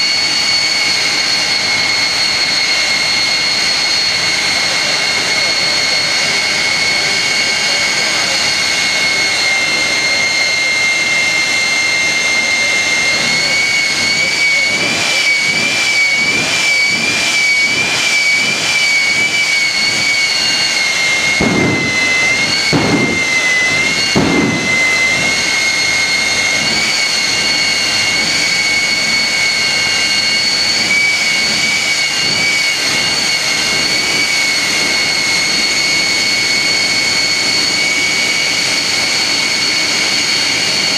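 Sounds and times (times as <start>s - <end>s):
jet engine whine: 0.0s - 40.9s
loud flame bursts: 13.1s - 28.9s.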